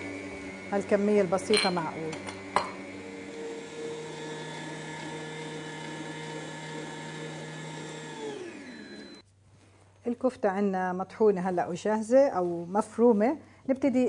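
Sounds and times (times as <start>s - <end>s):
meat grinder motor running: 0.0s - 9.2s.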